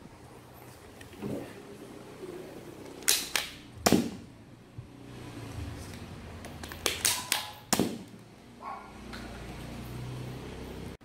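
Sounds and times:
foam dart blaster pops: 3.0s - 4.3s, 6.9s - 8.2s.

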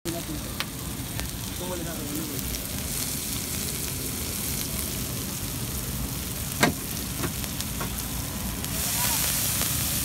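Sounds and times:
onions sizzling on a griddle: 0.1s - 10.0s
knocks on a griddle: 6.6s - 8.0s.

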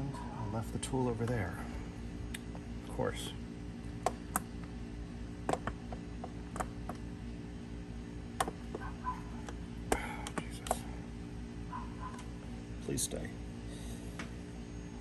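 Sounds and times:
steady low hum: 0.0s - 15.0s
light clicks and knocks of parts: 8.4s - 10.9s.

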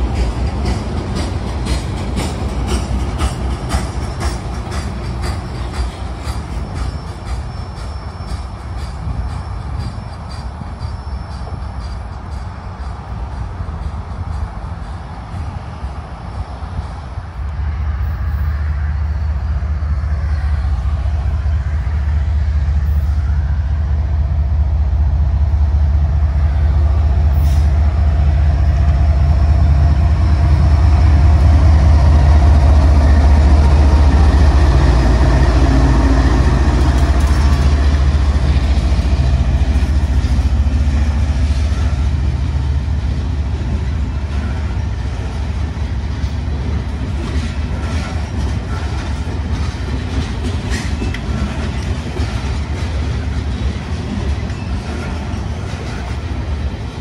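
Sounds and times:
diesel locomotive engine drone: 0.0s - 57.0s.

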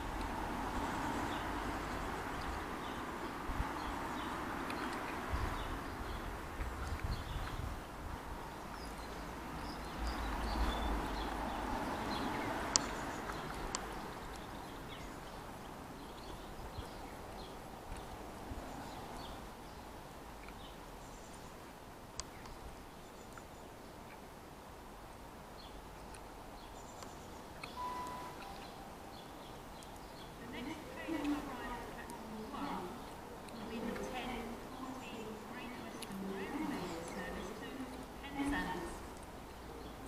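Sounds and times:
faint outdoor background noise: 0.0s - 40.0s
faint high chirps: 27.6s - 29.4s.

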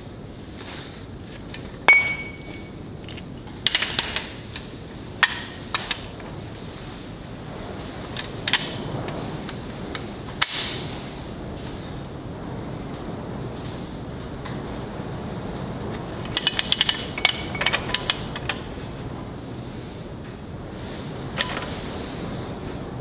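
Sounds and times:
metal clinks and clanks: 1.9s - 4.5s.

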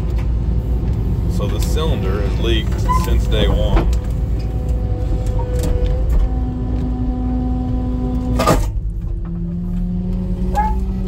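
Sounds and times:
hydraulics whining: 0.0s - 11.0s
sharp clunk: 8.3s - 9.4s.

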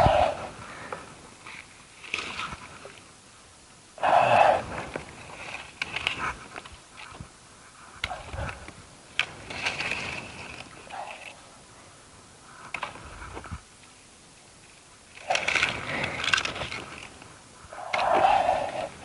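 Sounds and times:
bamboo rustling and scraping: 4.0s - 11.6s, 15.1s - 19.0s
brief clicks and cracks: 15.1s - 17.3s.

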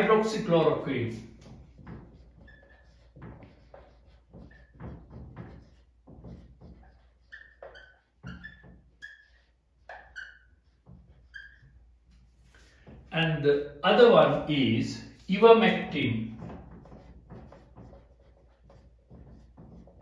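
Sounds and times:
marker writing on whiteboard: 0.0s - 20.0s
marker squeaks: 1.2s - 13.1s, 16.4s - 20.0s.

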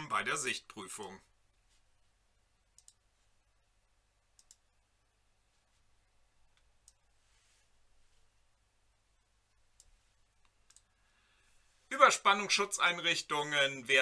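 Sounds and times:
low mains hum: 0.0s - 14.0s
computer mouse clicks: 2.8s - 3.0s, 4.4s - 4.7s, 6.5s - 7.1s, 9.8s - 10.9s.

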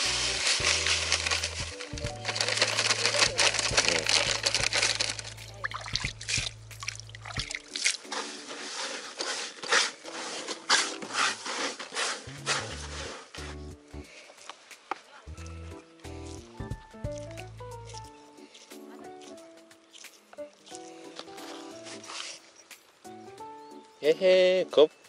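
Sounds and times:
background music with bass: 0.0s - 7.8s, 12.2s - 14.1s, 15.2s - 22.3s
bait squishing by hand: 0.1s - 10.1s, 15.4s - 22.7s.

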